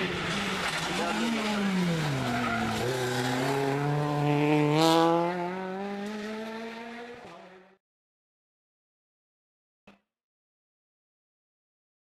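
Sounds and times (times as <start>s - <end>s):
rally car engine accelerating: 0.0s - 7.7s.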